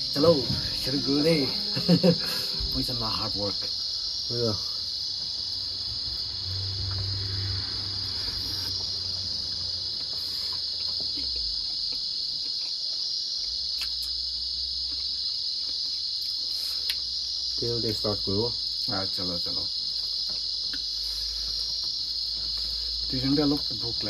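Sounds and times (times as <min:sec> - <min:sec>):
crickets chirring: 0:00.0 - 0:24.0
small clicks from eating: 0:10.0 - 0:14.2, 0:14.8 - 0:17.1.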